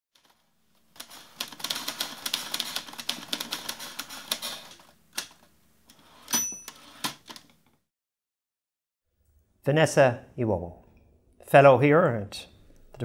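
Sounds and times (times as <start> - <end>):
typewriter keys clacking: 0.2 - 5.4.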